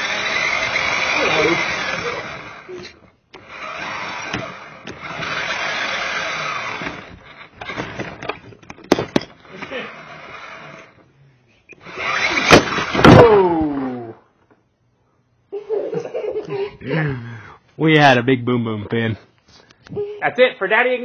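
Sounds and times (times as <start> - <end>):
toy car scraping and rattling: 0.0 - 11.0, 11.8 - 13.1.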